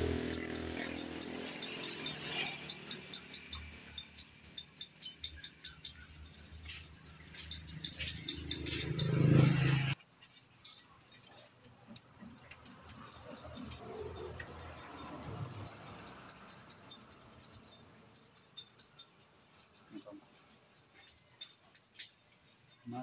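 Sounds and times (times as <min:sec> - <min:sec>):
metal tools clicking and rattling: 0:00.0 - 0:23.0.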